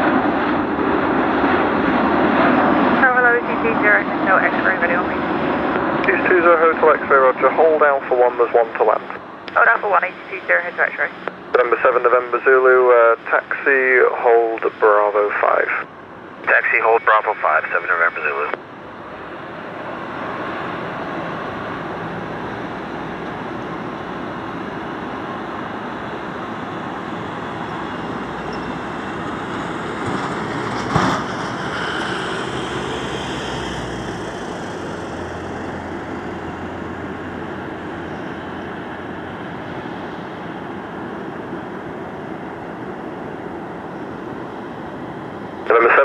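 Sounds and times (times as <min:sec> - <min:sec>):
jet engines during landing rollout: 0:00.0 - 0:46.0.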